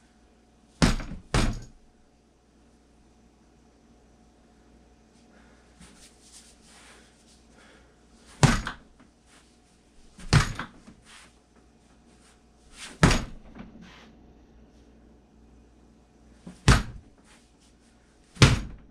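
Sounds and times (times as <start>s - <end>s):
bat striking rubber punching dummy: 8.4s - 8.8s, 16.6s - 17.1s.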